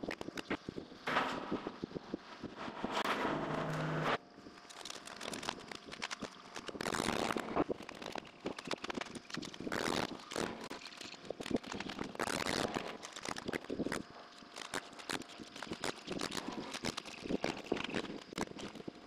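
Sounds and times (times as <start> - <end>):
clicks and knocks of shingles: 4.6 - 19.0.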